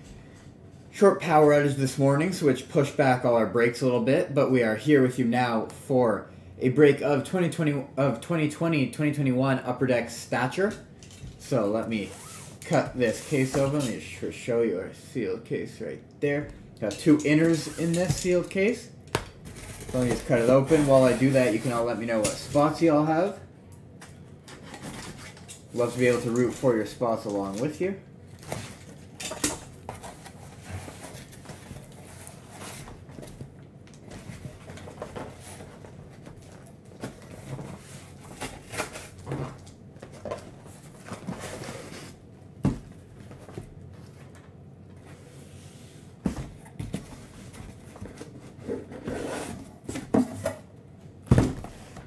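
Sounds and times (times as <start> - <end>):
cardboard scraping and rustling: 19.4 - 22.7, 29.9 - 33.4, 34.0 - 44.4, 45.2 - 50.6.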